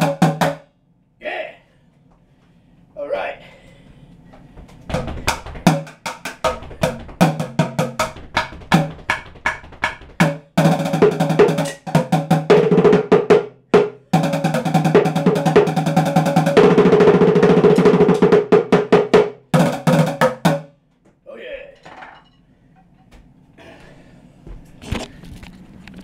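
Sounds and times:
drumsticks beating bongo and bucket: 0.0s - 0.6s, 4.8s - 20.7s.

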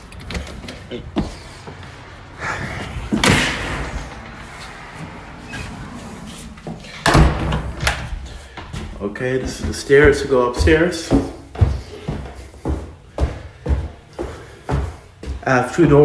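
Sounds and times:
doors banging shut: 3.1s - 4.4s, 6.8s - 8.2s.

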